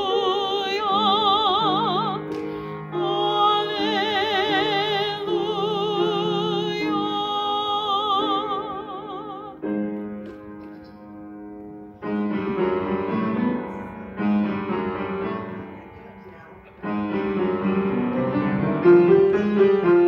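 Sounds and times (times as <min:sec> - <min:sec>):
woman singing with vibrato: 0:00.0 - 0:02.3, 0:02.9 - 0:09.8
piano chords ringing: 0:00.0 - 0:20.0.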